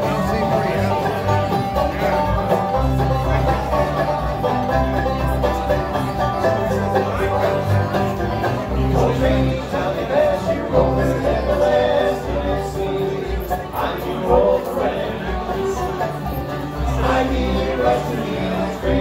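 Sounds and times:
acoustic guitar: 0:00.0 - 0:19.0
banjo picking quick rolls: 0:00.0 - 0:19.0
bass notes: 0:00.0 - 0:19.0.

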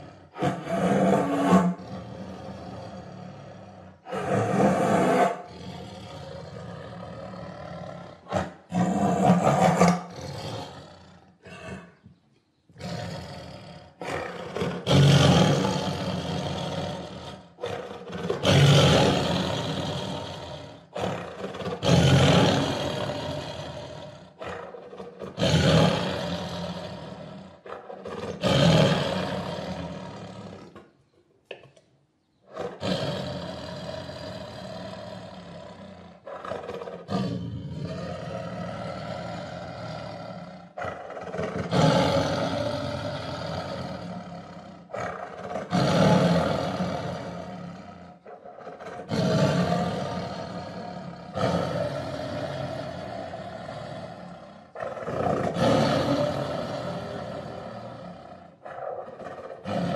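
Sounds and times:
tiger roaring: 0:00.0 - 0:12.0, 0:12.8 - 0:30.9, 0:32.5 - 0:59.9.

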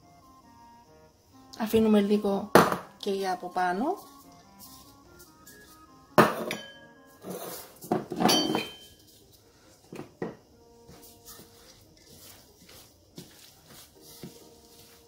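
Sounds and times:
metal bowl clanking: 0:06.2 - 0:09.0.

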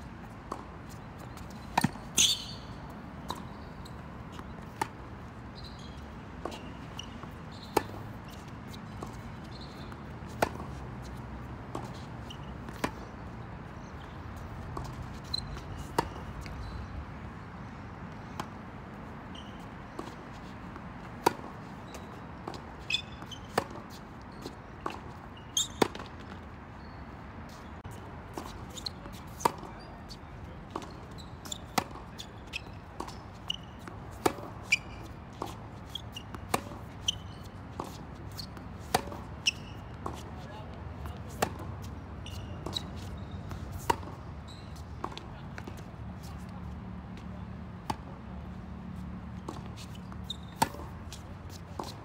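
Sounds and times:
tennis ball bouncing on court: 0:00.2 - 0:16.9, 0:18.1 - 0:52.0
racket striking tennis ball: 0:01.3 - 0:02.6, 0:09.8 - 0:10.8, 0:33.8 - 0:34.6, 0:35.3 - 0:40.3, 0:42.6 - 0:44.2, 0:49.5 - 0:52.0.

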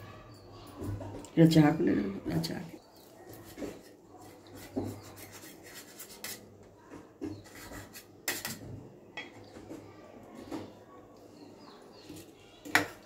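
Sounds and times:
knife sawing crisp bread: 0:03.3 - 0:06.5, 0:07.4 - 0:08.4.

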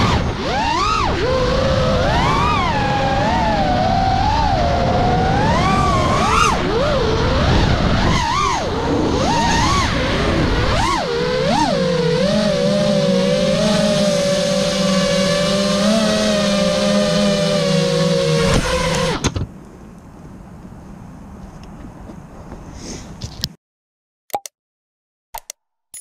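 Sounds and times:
rushing wind noise: 0:00.0 - 0:15.7
quadcopter motors whining: 0:00.0 - 0:19.5.

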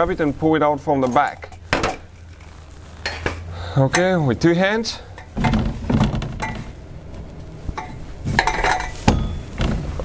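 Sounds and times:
metal clinks and knocks: 0:05.1 - 0:06.8, 0:07.8 - 0:10.0.

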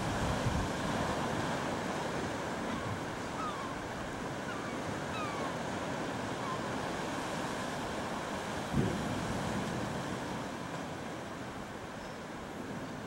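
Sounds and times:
wind on microphone: 0:00.0 - 0:01.8, 0:08.5 - 0:10.5
sea surf: 0:00.0 - 0:13.0.

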